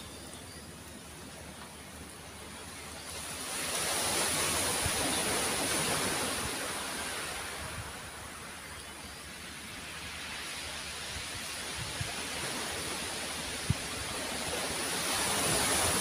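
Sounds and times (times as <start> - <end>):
waves on a pebble beach: 2.7 - 8.7, 9.3 - 16.0.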